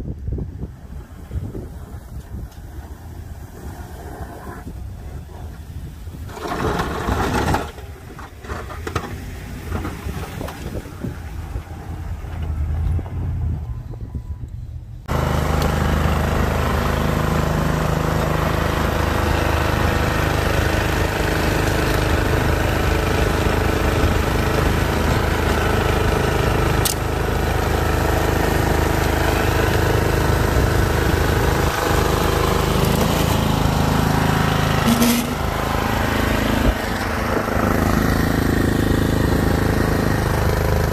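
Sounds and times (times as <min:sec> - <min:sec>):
snow blower engine running: 0:05.5 - 0:12.7, 0:15.1 - 0:40.9
low rumble: 0:09.7 - 0:15.1.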